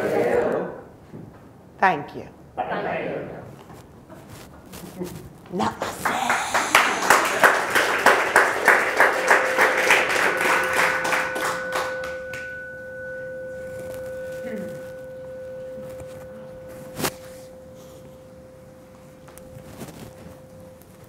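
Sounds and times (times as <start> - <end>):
audience clapping in rhythm: 5.6 - 12.5
pure ringing tone: 8.3 - 21.0.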